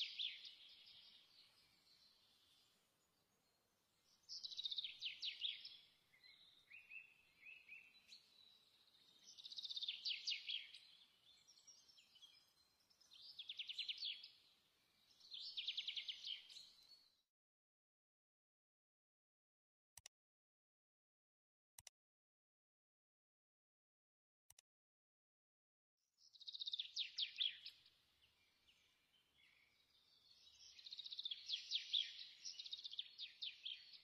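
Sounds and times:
songbird singing trilled phrases: 0.0s - 2.8s, 4.1s - 17.0s, 26.3s - 27.9s, 28.5s - 34.0s.

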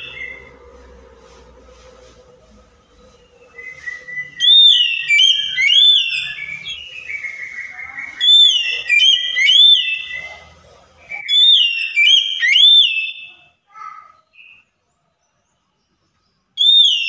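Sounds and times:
bird singing whistled phrases: 0.0s - 0.5s, 3.3s - 10.3s, 11.0s - 13.5s, 16.6s - 17.0s.

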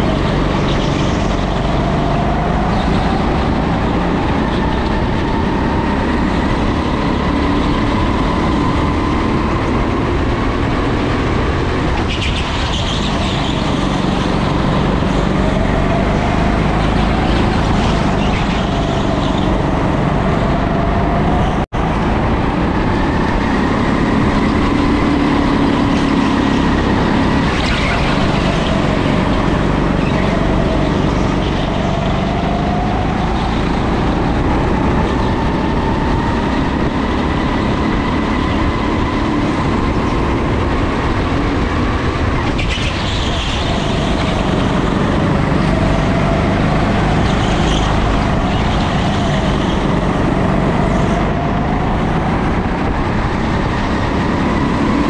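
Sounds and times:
go-kart engine revving: 0.0s - 55.0s.

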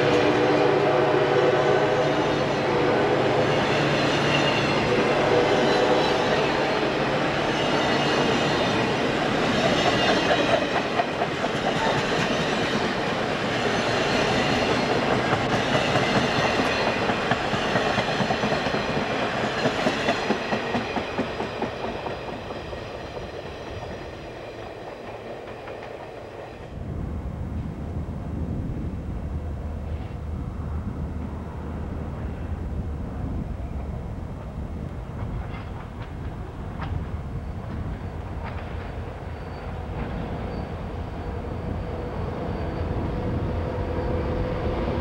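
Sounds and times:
train wheels clacking over rail joints: 7.6s - 26.6s, 35.1s - 40.7s.

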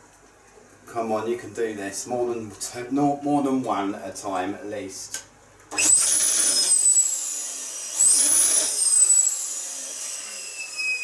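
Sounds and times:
electric balloon pump whining: 5.7s - 11.0s.

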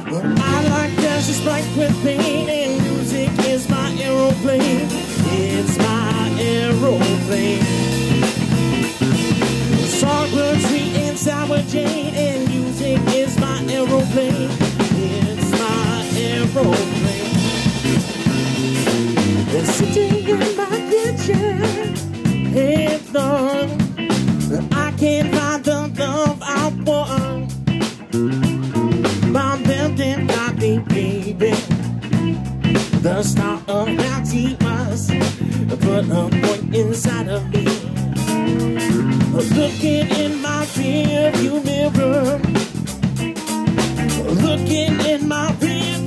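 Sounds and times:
live band playing: 0.0s - 46.0s
drum strokes: 0.4s - 23.2s.

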